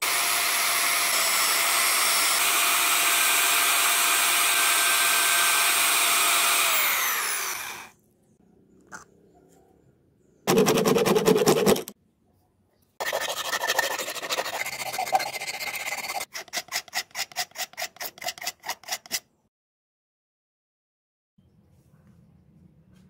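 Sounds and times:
sandpaper rasping inside plastic pipe: 10.5 - 12.0, 13.0 - 19.3.

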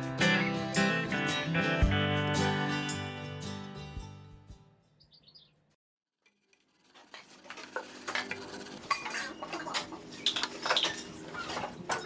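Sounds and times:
wire brush scrubbing rusty metal: 6.2 - 9.1.

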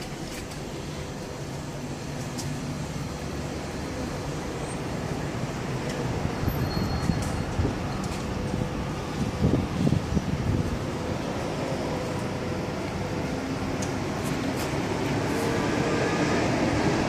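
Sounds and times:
steady low rumble: 7.4 - 17.0.

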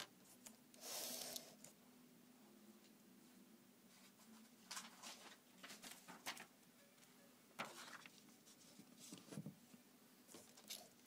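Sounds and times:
low room hum: 0.0 - 11.0
paper rustles: 3.9 - 6.5, 7.6 - 9.5
book pages turning: 7.6 - 9.5.

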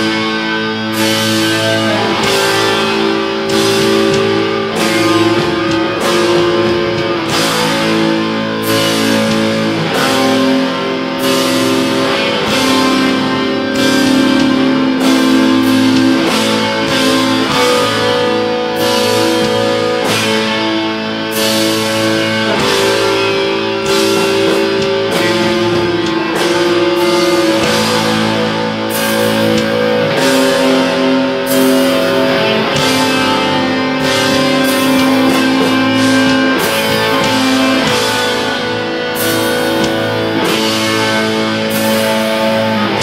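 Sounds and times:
distorted electric guitars: 0.0 - 43.0
drums and cymbals: 0.0 - 43.0.

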